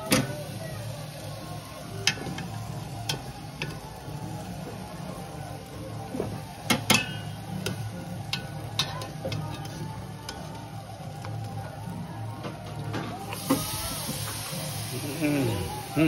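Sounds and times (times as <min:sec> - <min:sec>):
metal tongs clinking on metal: 0:06.7 - 0:10.5.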